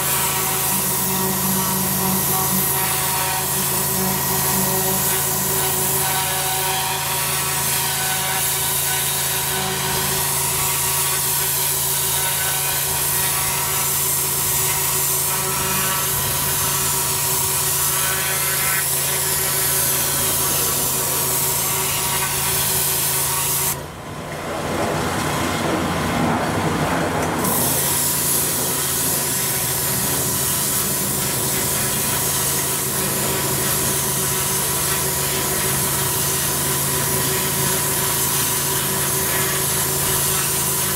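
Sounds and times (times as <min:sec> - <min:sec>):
pressure washer hum: 0:00.0 - 0:40.9
water jet hissing on paving: 0:27.4 - 0:40.9.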